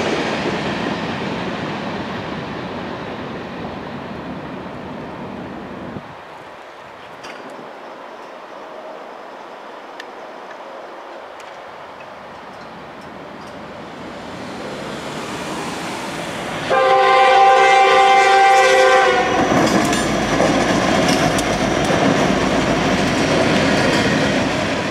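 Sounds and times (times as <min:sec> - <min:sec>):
train wheels clacking on rails: 0:11.4 - 0:24.9
diesel locomotive rumble: 0:12.2 - 0:24.9
train air horn blast: 0:16.6 - 0:19.6.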